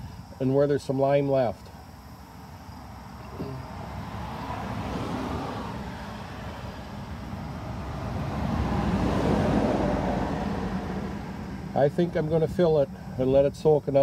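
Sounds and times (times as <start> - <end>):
vehicle passing: 3.1 - 13.5.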